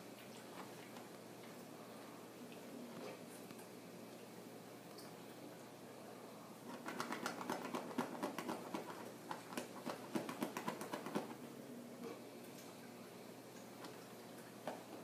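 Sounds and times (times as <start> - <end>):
dog claws scratching at bed: 6.7 - 11.4.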